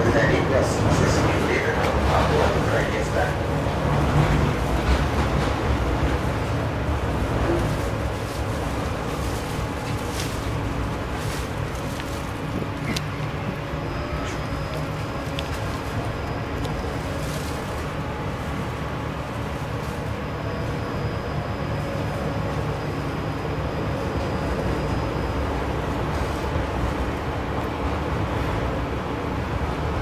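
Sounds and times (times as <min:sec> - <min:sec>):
high steady whine: 0:00.0 - 0:30.0
tram wheels rumbling on rail: 0:00.0 - 0:30.0.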